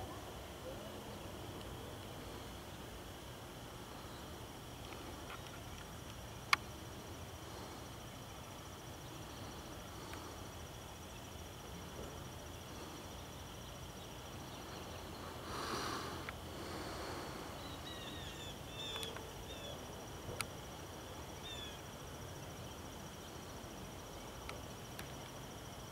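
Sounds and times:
high insect trill: 0.0 - 25.9
bird chirps: 17.6 - 19.8.

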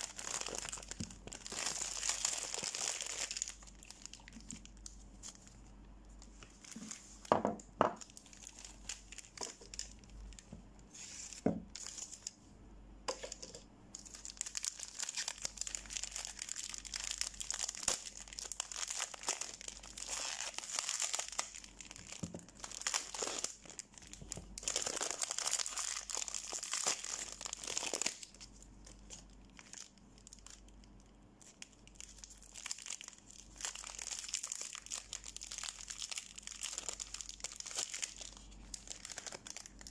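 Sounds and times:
wrappers crinkling and tearing: 0.0 - 5.6, 6.2 - 7.3, 8.0 - 10.5, 14.0 - 39.9.

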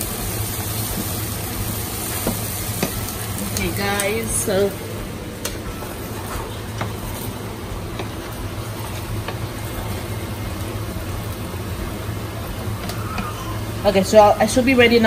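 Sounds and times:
steady low hum: 0.0 - 15.0
spatula tapping and scraping pan: 6.4 - 7.1.

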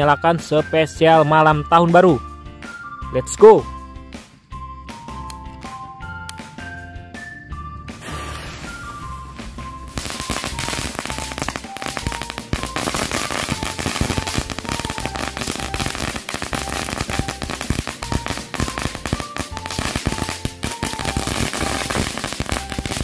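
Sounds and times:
firecrackers crackling: 8.0 - 23.0.

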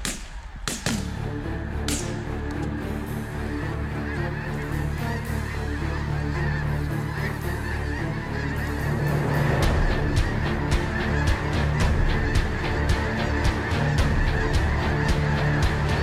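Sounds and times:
flock of geese honking: 1.8 - 16.0.

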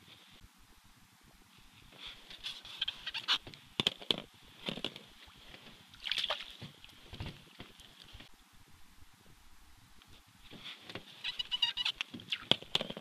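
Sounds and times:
crackles and clicks: 1.2 - 13.0
water splashing in ice hole: 5.9 - 7.0.

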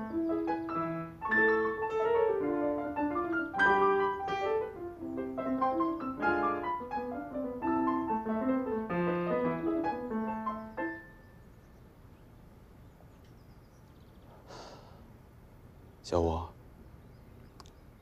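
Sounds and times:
piano runs and chords: 0.0 - 11.9
short breath: 14.3 - 15.1.

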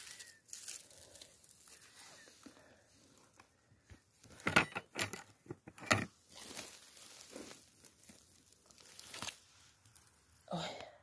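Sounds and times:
rustling of dry leaf litter: 0.0 - 3.6, 6.1 - 10.6
twigs snapping: 8.0 - 10.2.

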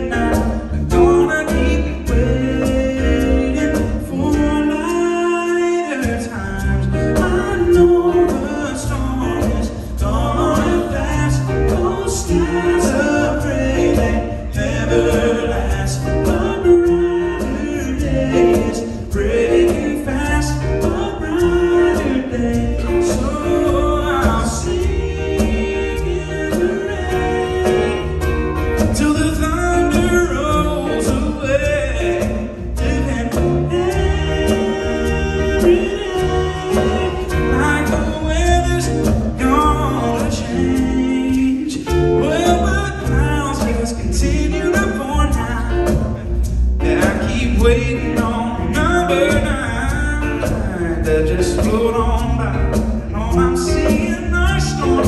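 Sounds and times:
acoustic guitars strumming: 0.0 - 55.0
men singing: 0.0 - 55.0.

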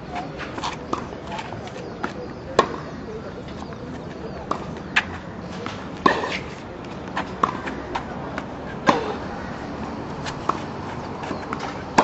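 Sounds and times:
tennis ball bouncing on court: 2.0 - 2.9, 4.4 - 12.0
tennis ball struck by rackets: 2.6 - 2.9, 4.5 - 12.0.

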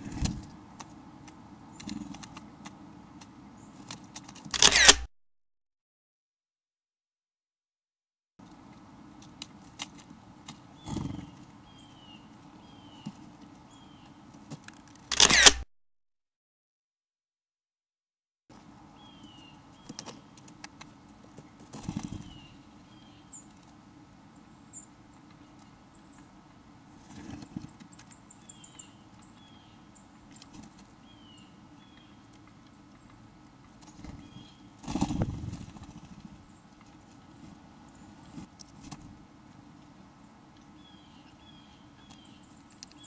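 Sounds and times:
small birds chirping: 1.2 - 2.4, 3.5 - 4.9, 10.5 - 14.3, 18.8 - 39.0, 40.0 - 43.0.

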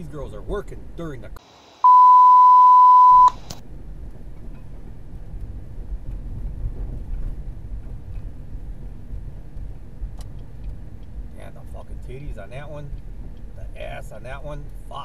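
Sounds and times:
steady bleep tone: 1.8 - 3.4
car road and engine rumble: 2.7 - 15.0.

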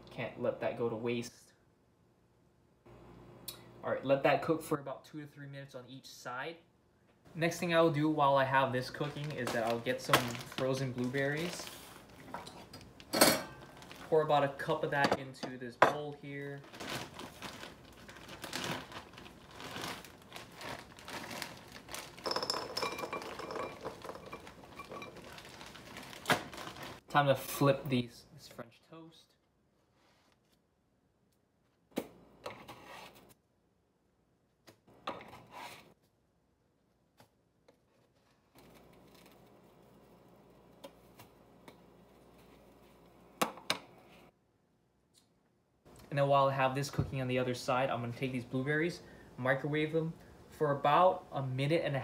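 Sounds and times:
plastic bag crinkling: 8.7 - 12.3, 12.9 - 14.6, 16.1 - 27.0
frozen berries clinking into bowl: 18.4 - 27.0.

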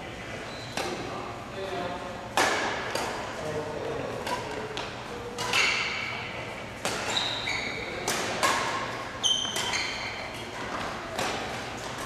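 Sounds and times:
sneakers squeaking on court floor: 0.4 - 1.0, 6.8 - 12.0
badminton rackets hitting shuttlecock: 2.3 - 3.4, 4.1 - 12.0.

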